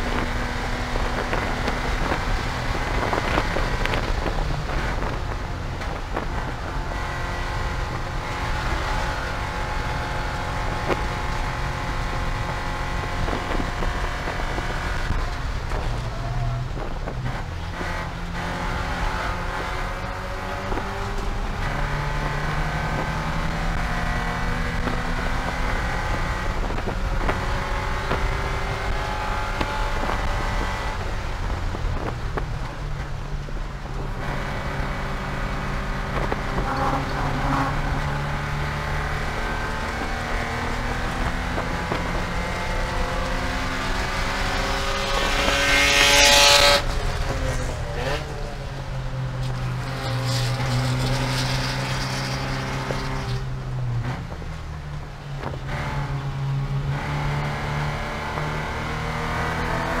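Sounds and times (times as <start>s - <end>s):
race car engine running hard: 0.0s - 60.0s.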